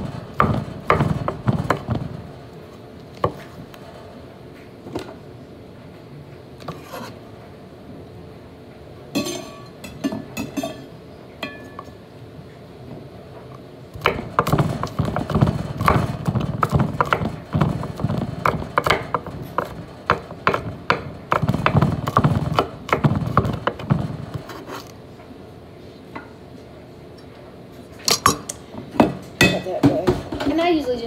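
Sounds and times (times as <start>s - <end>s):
knife chopping on wooden board: 0.0s - 2.2s, 14.0s - 24.9s.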